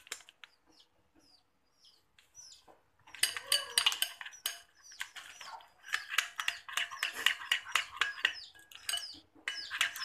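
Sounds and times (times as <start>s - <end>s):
small birds chirping: 0.0s - 10.0s
metal spoon scraping glass bowl: 3.1s - 10.0s.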